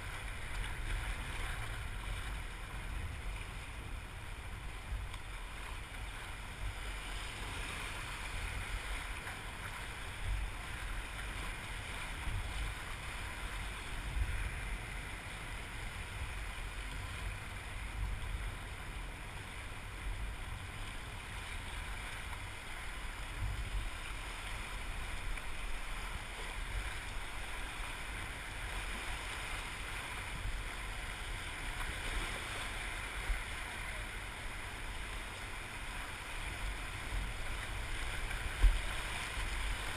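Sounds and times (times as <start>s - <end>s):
wind on microphone: 0.0s - 39.9s
whitewater rushing: 19.6s - 39.9s.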